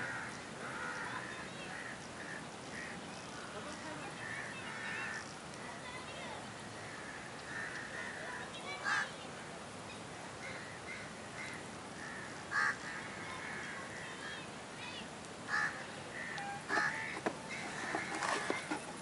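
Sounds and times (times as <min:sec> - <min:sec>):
crows cawing: 0:00.0 - 0:05.3, 0:06.7 - 0:09.1, 0:10.4 - 0:14.4, 0:15.5 - 0:18.8
outdoor background noise: 0:00.0 - 0:19.0.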